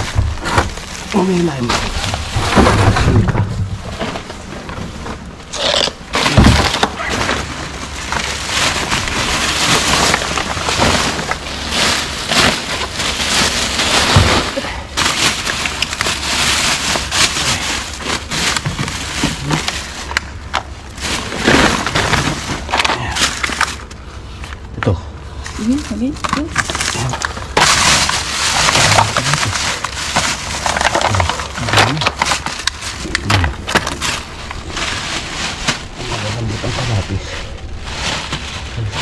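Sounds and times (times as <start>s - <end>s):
heavy thumps: 0.0s - 5.2s
plastic bags crackling and rustling: 0.0s - 39.0s.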